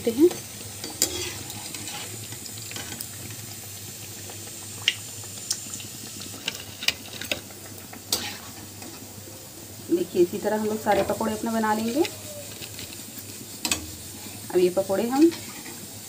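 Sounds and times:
hot oil sizzling: 0:00.0 - 0:16.0
oil crackles and pops: 0:00.6 - 0:09.1, 0:11.8 - 0:14.2.

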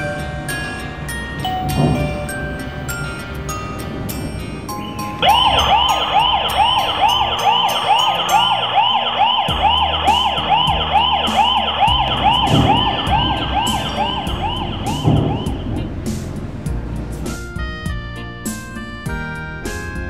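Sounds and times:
electronic alarm siren sweeping: 0:05.2 - 0:15.9.

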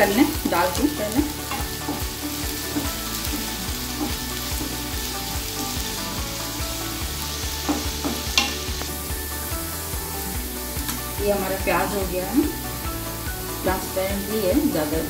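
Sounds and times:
onion sizzling in frying pan: 0:00.0 - 0:15.0
spatula scraping and tapping pan: 0:01.3 - 0:06.0, 0:07.4 - 0:09.0.

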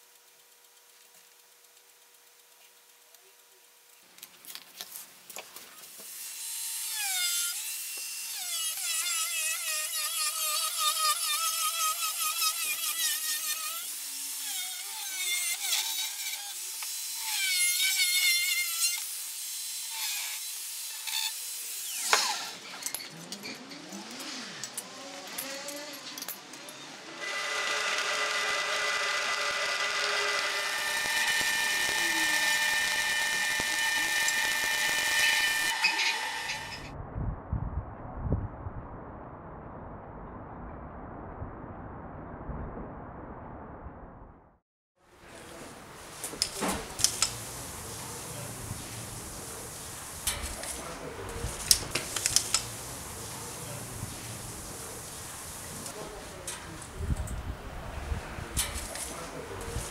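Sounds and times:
arc welding hiss and crackle: 0:00.0 - 0:23.0, 0:27.2 - 0:36.8, 0:46.0 - 0:56.6
angle grinder cutting steel: 0:05.9 - 0:36.9.

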